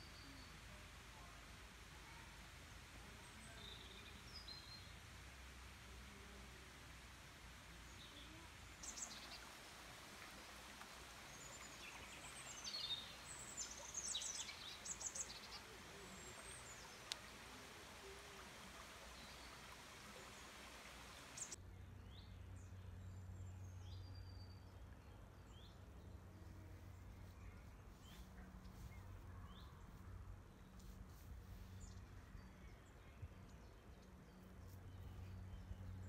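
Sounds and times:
steady background hiss: 0.0 - 21.6
woodland birds chirping: 7.8 - 22.7.

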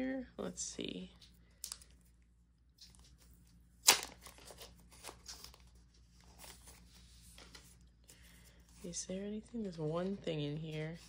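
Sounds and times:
card packet crinkling: 2.8 - 8.9.

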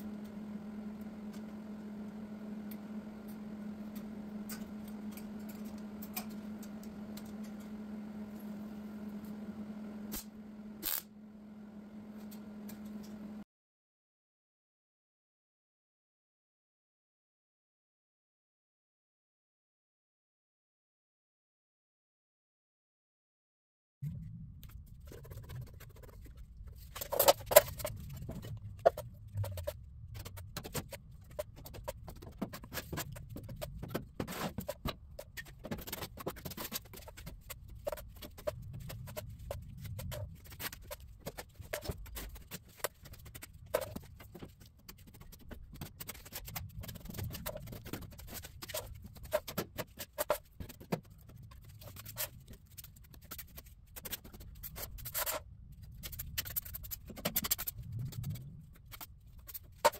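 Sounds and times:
low rumble: 24.0 - 25.2.

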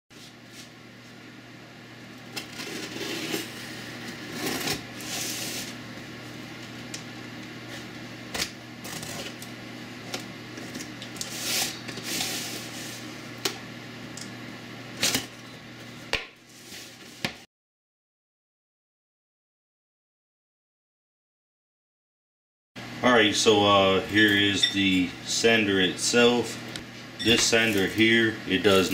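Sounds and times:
knife cutting cardboard box: 2.4 - 3.6, 4.2 - 5.7.

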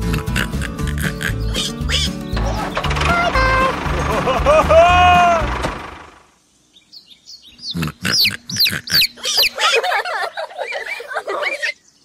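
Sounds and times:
background music: 0.0 - 6.1
high-pitched animal squeals and peeps: 1.0 - 2.8, 7.6 - 9.8, 10.6 - 11.8.

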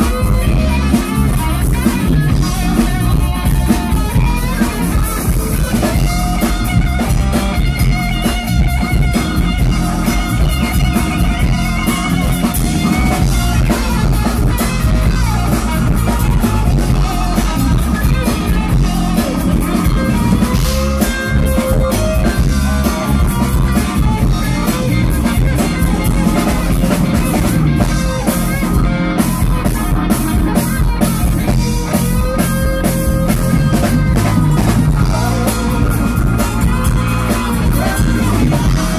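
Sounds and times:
rock band playing: 0.0 - 38.9
person singing: 9.6 - 38.9.

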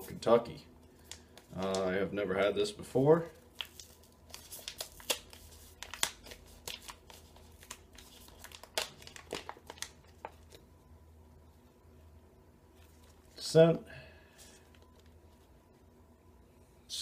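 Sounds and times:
foil pouch crinkling: 3.4 - 10.6.

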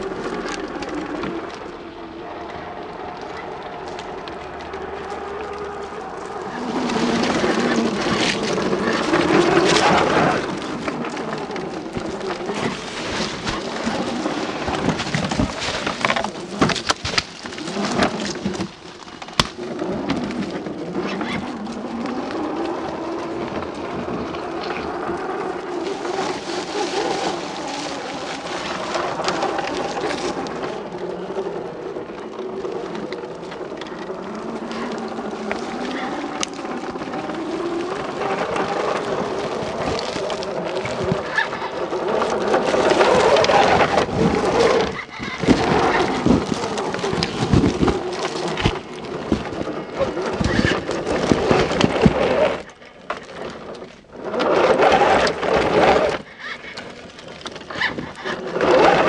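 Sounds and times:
electric motor and gears whining: 0.0 - 59.0
tyres crackling over twigs: 0.0 - 59.0.

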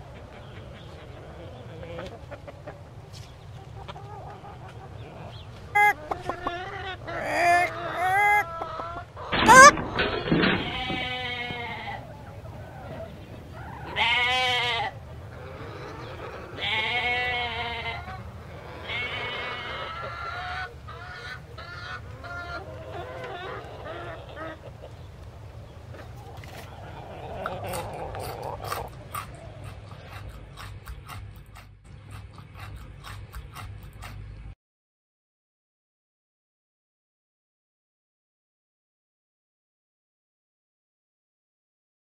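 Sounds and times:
chicken clucking: 0.0 - 34.6
long wavering bleats: 10.4 - 12.1, 13.8 - 20.0.

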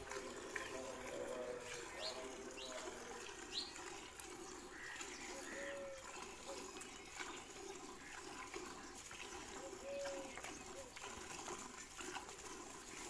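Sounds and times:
milk squirting into metal bucket: 0.0 - 13.0.

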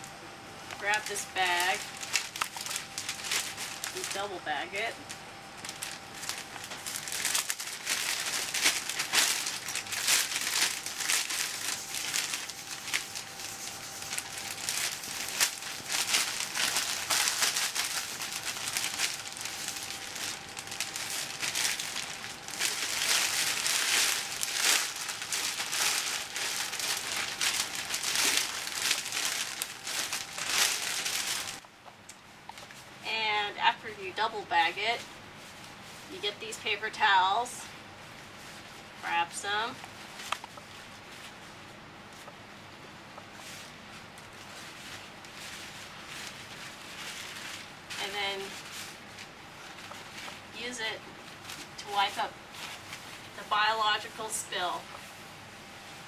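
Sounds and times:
faint steady hum: 0.0 - 56.0
plastic bags crinkling: 0.7 - 31.6, 43.3 - 50.6.

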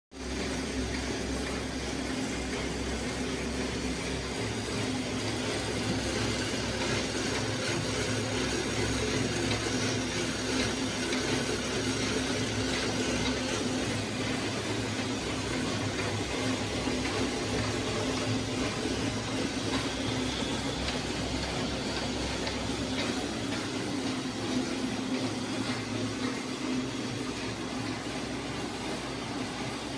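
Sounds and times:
machine mechanical whir: 0.2 - 29.9.

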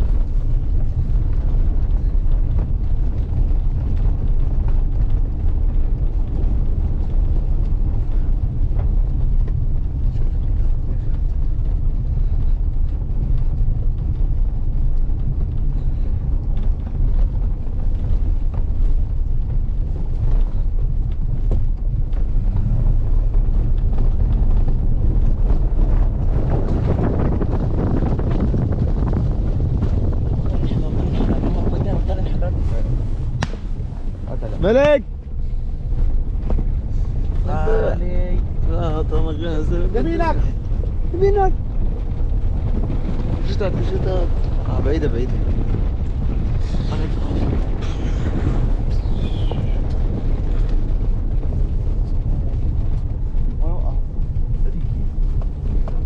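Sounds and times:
tyre and road noise: 0.0 - 56.0
wind noise: 0.0 - 56.0.

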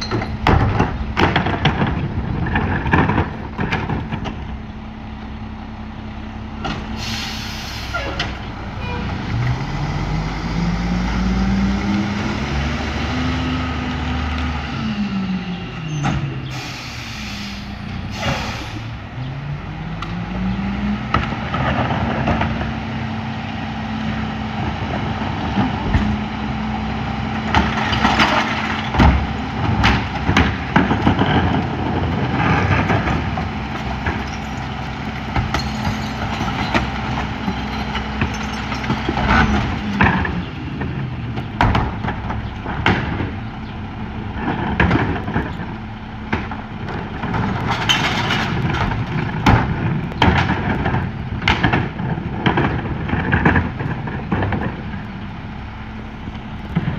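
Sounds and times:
diesel truck engine revving: 0.5 - 56.9
recyclables clattering: 27.6 - 41.1, 46.4 - 55.0
carts banging against hopper: 44.4 - 55.0.

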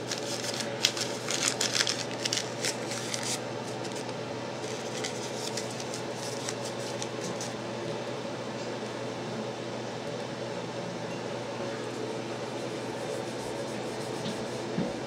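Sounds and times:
paper filter rustling: 0.0 - 7.6
steady background hum: 0.0 - 15.0.

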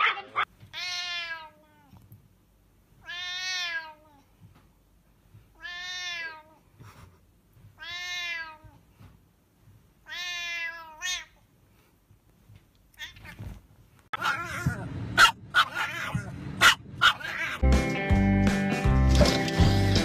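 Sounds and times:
cat meowing: 0.7 - 2.0, 3.0 - 4.3, 5.6 - 6.6, 7.8 - 8.8, 10.0 - 11.4, 12.9 - 13.6, 14.2 - 14.8, 15.6 - 16.3, 17.0 - 17.6.

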